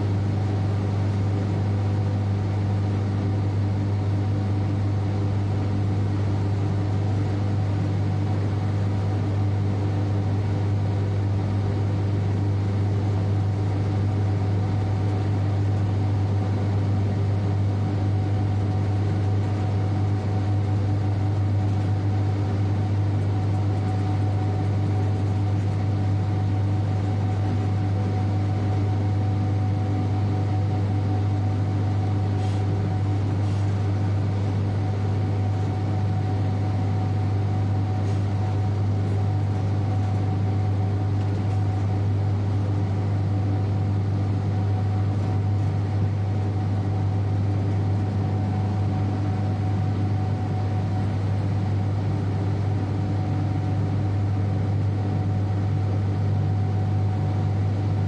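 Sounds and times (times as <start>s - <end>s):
thin steady whine: 2.6s - 55.8s.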